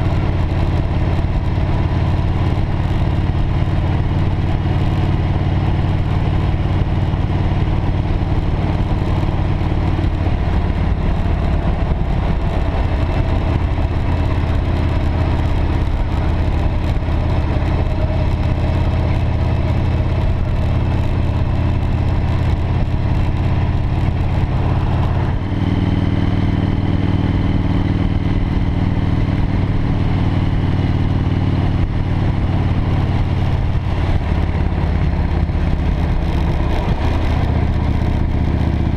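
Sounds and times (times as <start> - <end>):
motorcycle engine running: 0.0 - 38.9
wind rush: 15.6 - 28.5.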